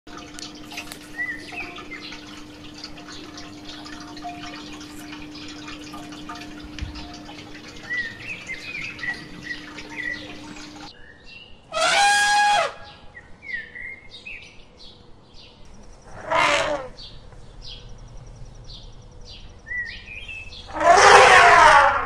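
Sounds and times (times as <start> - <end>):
steady low hum: 0.1 - 10.9, 15.0 - 20.8
small birds chirping: 0.1 - 11.6, 16.9 - 20.7.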